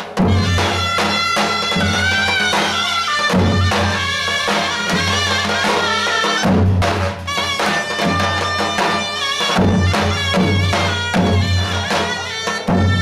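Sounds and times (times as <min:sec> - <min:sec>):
shawms playing bending melody: 0:00.0 - 0:13.0
bass drums beating: 0:06.4 - 0:07.2.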